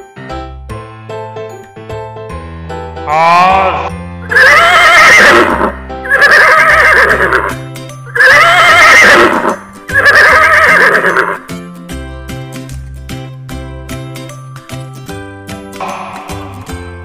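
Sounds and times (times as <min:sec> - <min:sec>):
background music: 0:00.0 - 0:17.0
horse neighing: 0:03.1 - 0:11.5.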